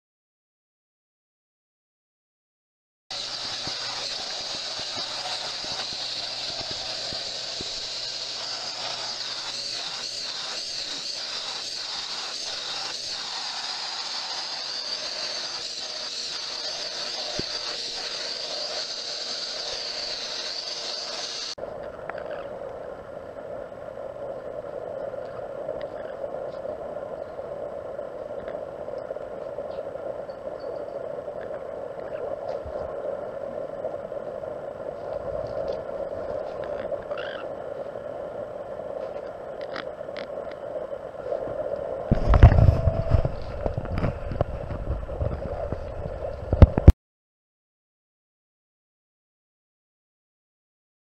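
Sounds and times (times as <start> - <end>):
vacuum cleaner running: 3.1 - 21.6.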